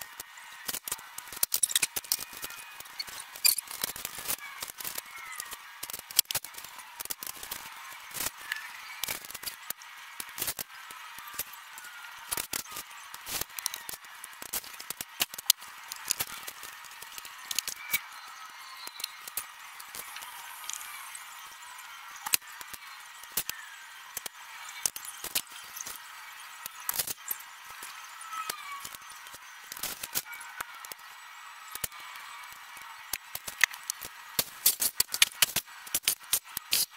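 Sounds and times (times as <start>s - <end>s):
vinyl film clicks and crackles: 0.6s - 11.6s, 12.3s - 18.0s, 32.5s - 36.9s.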